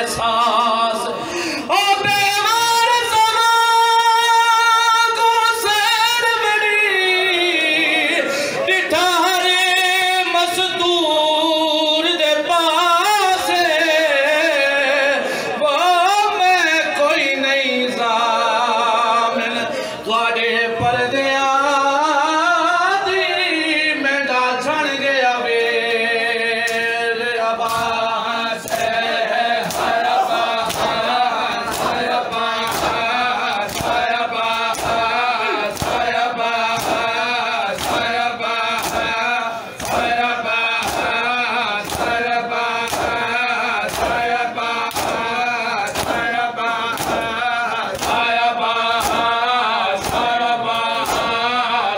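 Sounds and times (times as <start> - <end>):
men chanting in chorus: 0.0 - 51.9
hands slapping on chests: 29.6 - 31.1, 31.7 - 39.2, 39.8 - 40.2, 40.8 - 41.2, 41.8 - 48.3, 49.0 - 49.3, 50.0 - 50.4, 51.0 - 51.4.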